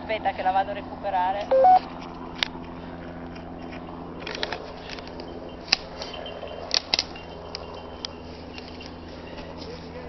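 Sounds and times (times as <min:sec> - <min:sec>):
steady low hum: 0:00.0 - 0:10.0
rustling through dry undergrowth: 0:02.6 - 0:10.0.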